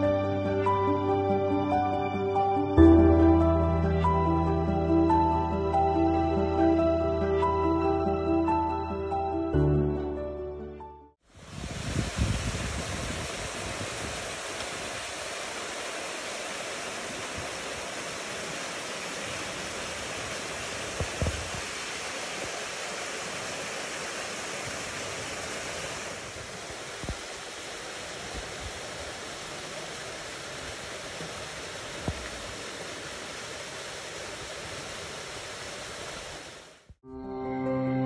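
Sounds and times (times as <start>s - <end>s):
waterfall rushing into pool: 11.2s - 36.9s.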